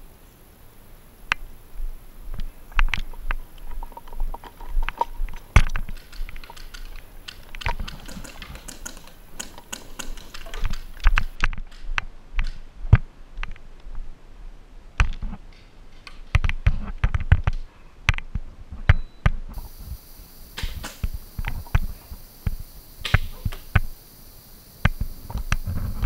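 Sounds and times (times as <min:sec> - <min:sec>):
paintball markers popping: 0:02.8 - 0:11.4.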